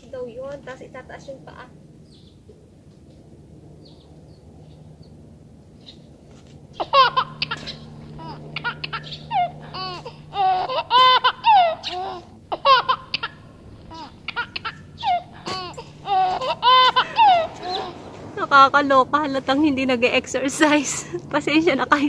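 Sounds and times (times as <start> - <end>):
high-pitched giggles: 6.8 - 18.2.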